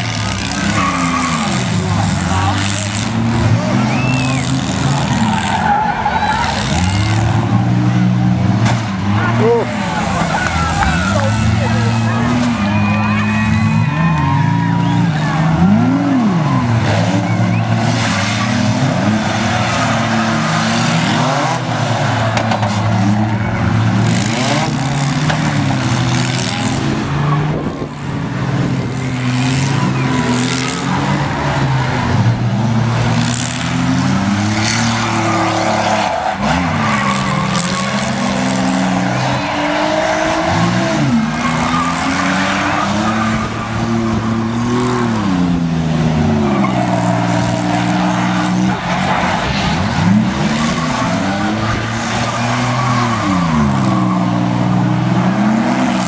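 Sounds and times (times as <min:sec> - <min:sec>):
car engines revving: 0:00.0 - 0:56.0
tyres spinning on pavement: 0:00.0 - 0:56.0
cars crashing into each other: 0:16.4 - 0:28.0.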